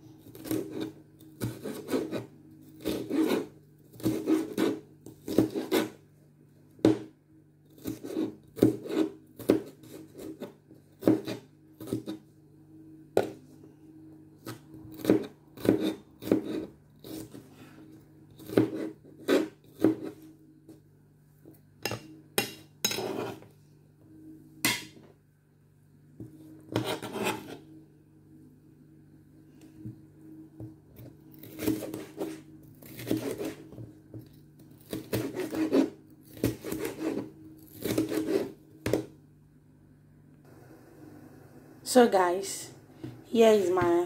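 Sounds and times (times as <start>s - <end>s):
knife chopping on plastic board: 0.3s - 6.0s, 6.8s - 7.1s, 7.8s - 12.2s, 14.4s - 17.4s, 18.4s - 20.2s, 26.2s - 27.6s, 34.8s - 39.1s
steady low hum: 9.3s - 44.0s.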